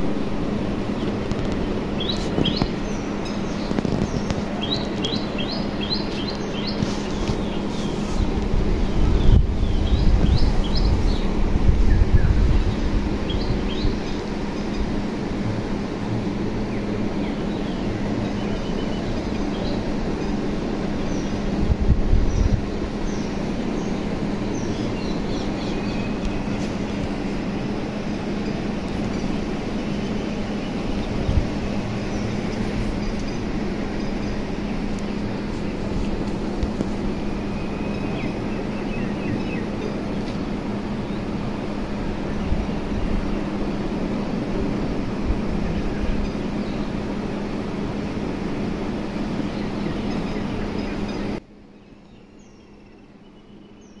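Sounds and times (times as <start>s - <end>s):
steady low hum: 0.0s - 54.0s
small bird chirping: 1.0s - 8.2s
faint high bird chirps: 37.2s - 40.0s, 49.5s - 54.0s.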